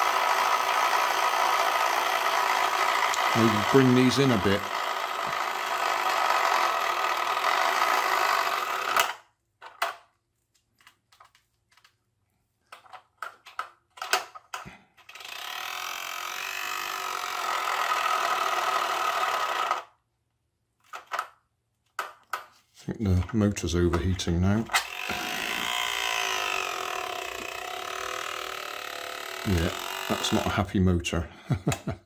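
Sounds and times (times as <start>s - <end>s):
small electric motor buzzing: 0.0s - 9.2s, 15.1s - 20.0s, 24.7s - 30.6s.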